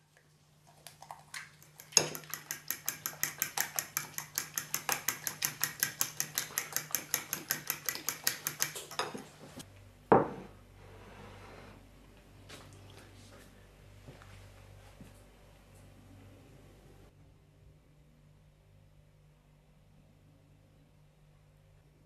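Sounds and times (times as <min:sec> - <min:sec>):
fork beating eggs in glass bowl: 0:00.7 - 0:09.6.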